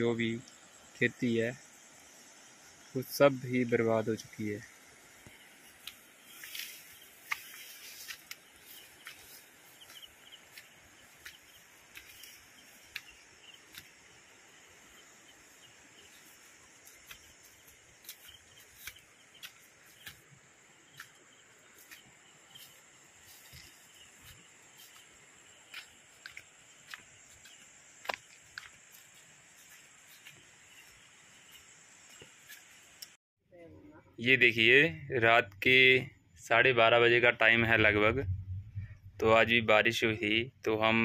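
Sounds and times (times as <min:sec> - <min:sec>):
insects droning: 0:00.0 - 0:41.0
footsteps through grass: 0:05.6 - 0:33.0.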